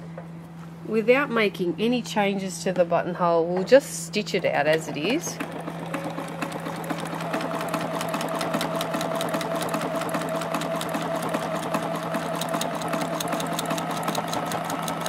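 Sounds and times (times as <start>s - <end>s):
sewing machine motor hum: 4.7s - 15.0s
sewing machine needle clatter: 4.7s - 15.0s.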